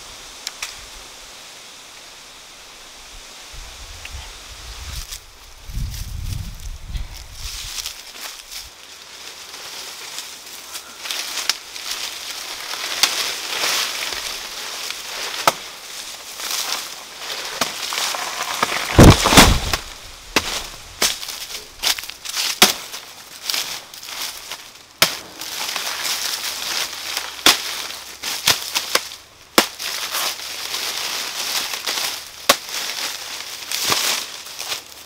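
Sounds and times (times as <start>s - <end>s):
dry leaves crackling and rustling: 2.8s - 35.0s
leaves snapping: 4.9s - 35.0s
loud crunching crash: 10.2s - 30.2s.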